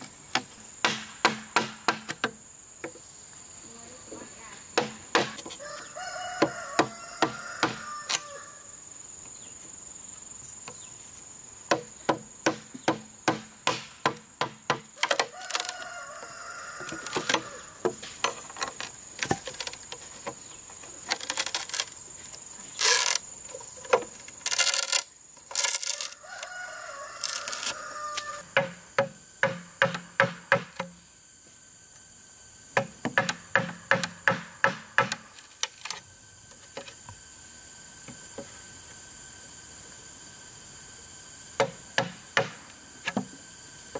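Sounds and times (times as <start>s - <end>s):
chisel knocking into bamboo: 0.3s - 2.4s, 4.8s - 5.5s, 32.8s - 35.3s
rooster crowing: 5.6s - 8.8s, 15.2s - 17.8s, 25.9s - 28.5s
blade rasping through bamboo: 20.9s - 22.0s, 22.7s - 23.2s.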